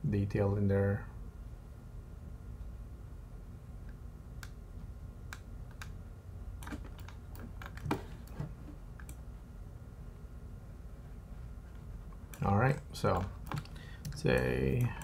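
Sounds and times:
faint steady low hum: 0.0 - 15.0
computer keyboard and mouse clicks: 5.3 - 6.0, 6.6 - 8.4, 9.0 - 9.2, 12.2 - 15.0.

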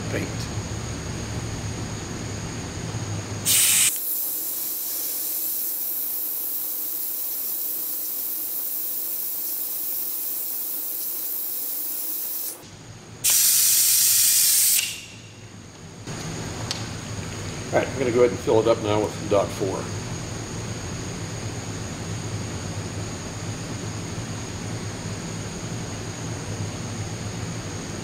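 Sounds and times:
brake bleeder air hissing: 3.4 - 15.3.

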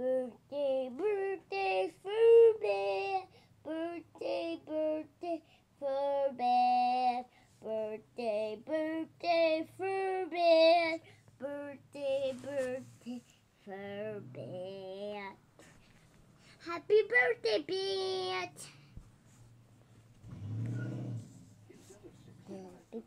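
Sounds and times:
young child singing: 0.0 - 15.7, 16.5 - 18.8.

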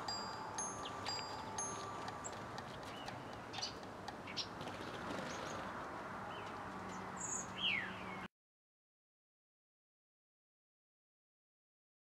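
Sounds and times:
faint steady hiss: 0.0 - 3.4
small birds chirping: 0.1 - 5.7, 6.3 - 8.3.

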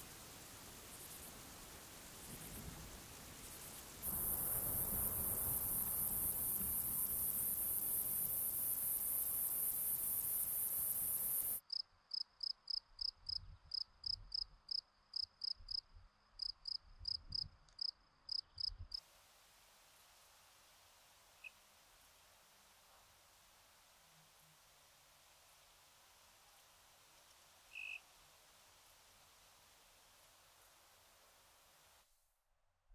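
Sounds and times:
cricket chirping: 3.4 - 19.0, 27.7 - 28.1
insect high-pitched buzzing: 3.5 - 15.8.

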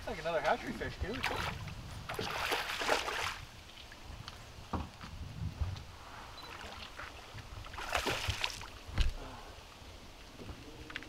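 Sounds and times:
fish thrashing and splashing: 1.1 - 3.4, 7.7 - 8.7.

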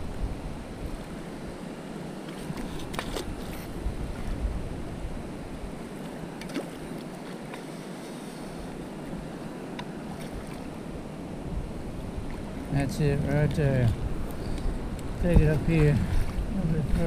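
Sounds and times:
wind on microphone: 0.0 - 6.6, 10.0 - 17.0
shallow surf washing: 0.0 - 17.0.

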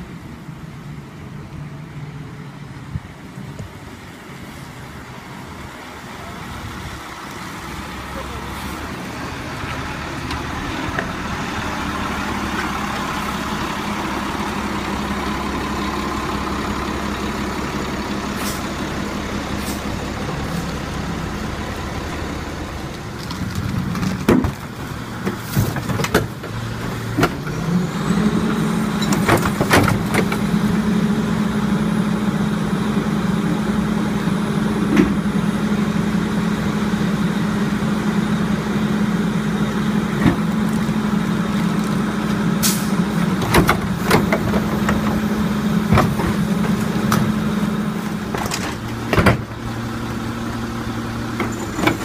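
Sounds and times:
garbage truck diesel engine: 0.0 - 52.0
carts clanking and banging: 22.8 - 30.8, 39.9 - 52.0.

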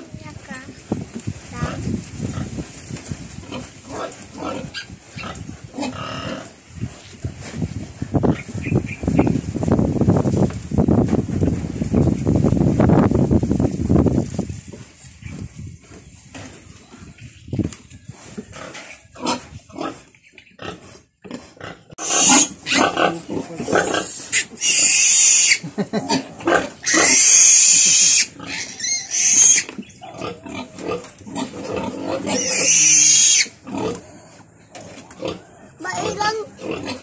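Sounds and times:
piglet squealing shrilly: 22.0 - 23.0, 24.3 - 25.6, 26.8 - 29.7, 32.3 - 33.5.

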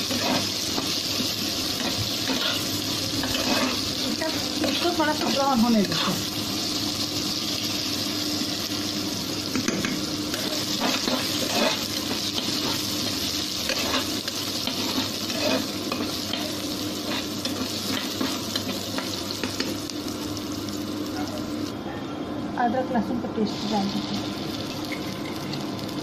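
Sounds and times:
onions sizzling in hot oil: 0.0 - 21.7, 23.3 - 26.0
metal spatula scraping pot: 10.4 - 12.8, 13.7 - 16.0.

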